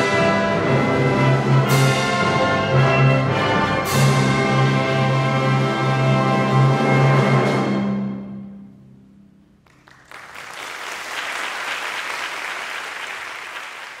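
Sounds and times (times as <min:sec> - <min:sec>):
audience applause: 0:09.6 - 0:14.0.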